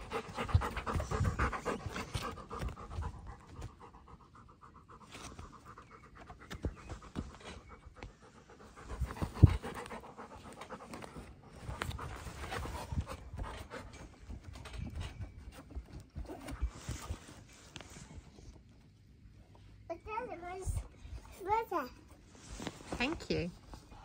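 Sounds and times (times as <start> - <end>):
dog panting: 0.0 - 17.2.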